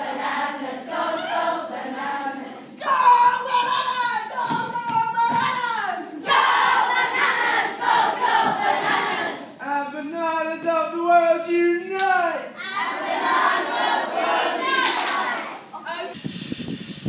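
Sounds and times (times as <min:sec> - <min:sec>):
children singing and chanting: 0:00.0 - 0:09.6, 0:12.6 - 0:15.8.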